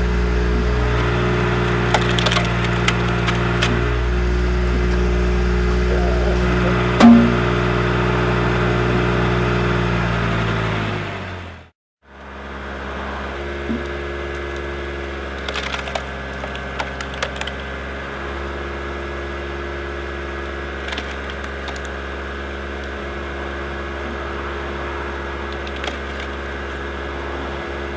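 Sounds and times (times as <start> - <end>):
car engine running: 0.0 - 27.9
wood cracking and splintering: 0.5 - 5.1, 13.6 - 27.4.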